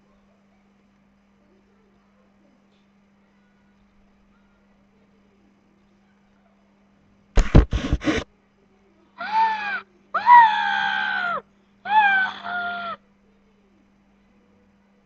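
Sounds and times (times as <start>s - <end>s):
loud thumps: 7.4s - 8.2s
girl screaming: 9.2s - 13.0s.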